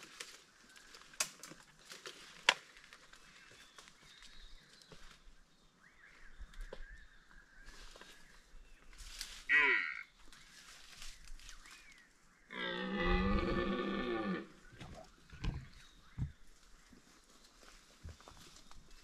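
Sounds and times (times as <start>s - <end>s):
deer stag roaring: 12.5s - 14.6s.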